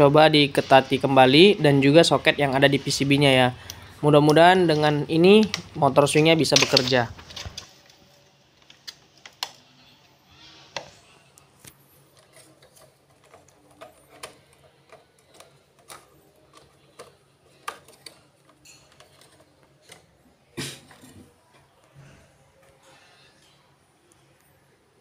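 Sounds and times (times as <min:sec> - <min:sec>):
plastic connectors clicking: 0:03.6 - 0:08.0, 0:08.6 - 0:09.7, 0:11.6 - 0:20.2.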